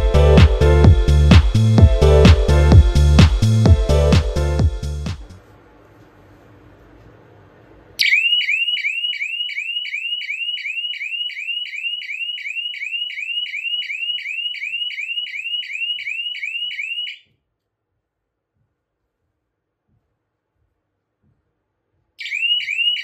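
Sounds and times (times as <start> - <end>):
electronic siren whooping: 8.0 - 17.3, 22.2 - 23.0.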